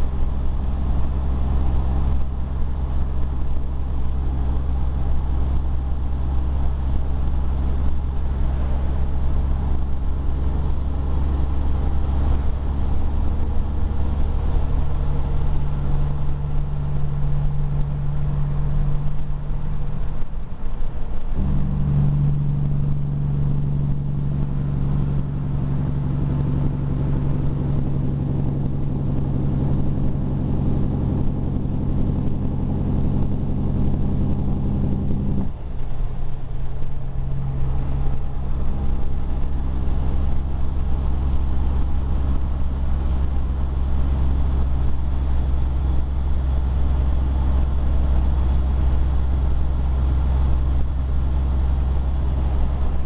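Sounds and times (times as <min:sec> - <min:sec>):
vehicle engine and road noise: 0:00.0 - 0:53.0.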